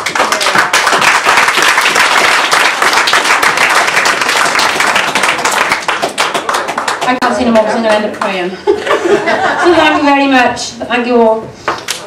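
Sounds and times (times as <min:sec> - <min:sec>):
crowd applauding: 0:00.0 - 0:07.7.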